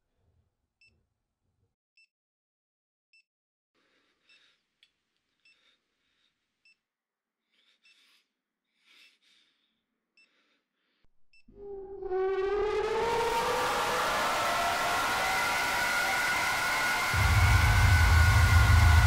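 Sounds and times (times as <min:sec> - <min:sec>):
wailing siren-like tone: 0:11.5 - 0:19.0.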